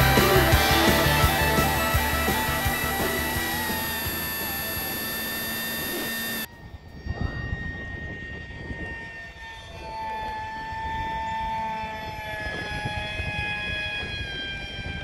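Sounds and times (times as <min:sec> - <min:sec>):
lower jet whine: 0:00.0 - 0:15.0
model jet high whine: 0:00.0 - 0:15.0
wind on microphone: 0:06.5 - 0:09.9.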